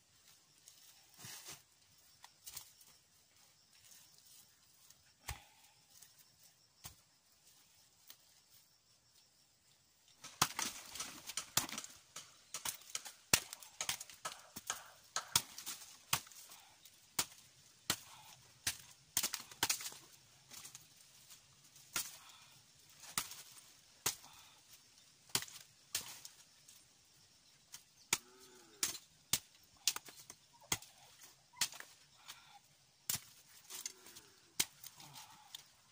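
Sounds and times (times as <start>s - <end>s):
machete chopping wooden stick: 10.2s - 20.7s, 21.9s - 22.3s, 23.0s - 24.3s, 25.3s - 26.3s, 28.1s - 32.0s, 33.1s - 33.9s.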